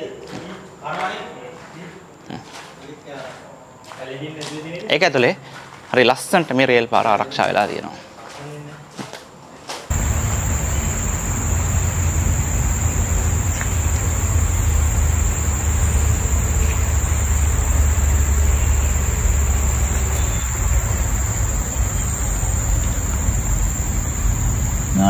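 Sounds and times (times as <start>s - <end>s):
forest insects droning: 9.9s - 25.0s
low rumble: 9.9s - 25.0s.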